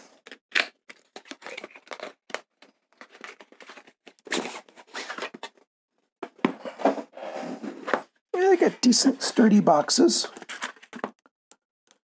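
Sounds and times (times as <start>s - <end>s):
cardboard scraping and rustling: 6.4s - 8.7s.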